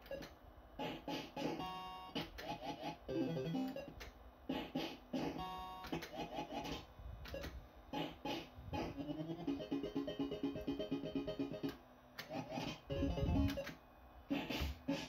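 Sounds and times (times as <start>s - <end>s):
quick repeated electronic notes: 1.5s - 3.8s, 8.9s - 11.7s, 12.4s - 13.6s
fruit machine electronic tunes: 1.5s - 3.9s, 8.9s - 11.8s, 12.4s - 13.7s.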